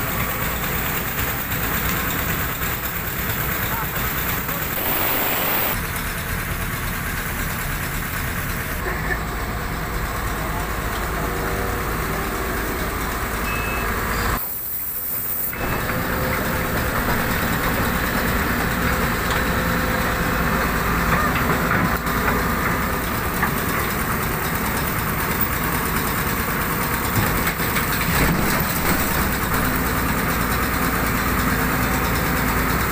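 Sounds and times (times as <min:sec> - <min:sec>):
excavator diesel engines under load: 0:00.0 - 0:32.9.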